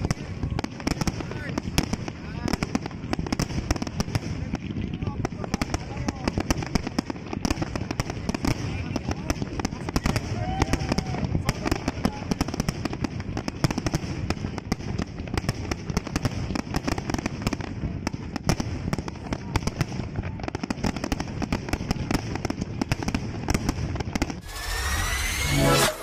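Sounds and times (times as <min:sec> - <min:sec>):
fireworks bangs and crackles: 0:00.0 - 0:26.0
electronic music: 0:24.4 - 0:26.0.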